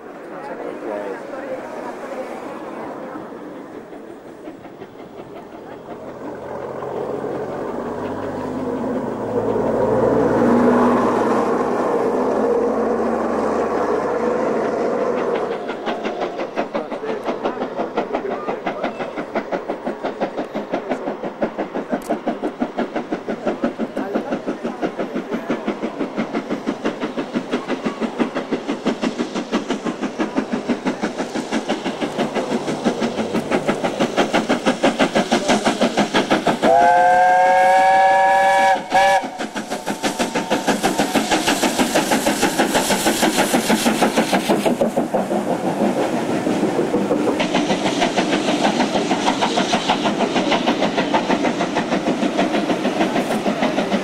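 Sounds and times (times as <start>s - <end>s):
steam locomotive exhaust beat: 0.0s - 54.0s
steam locomotive whistle: 36.6s - 39.6s.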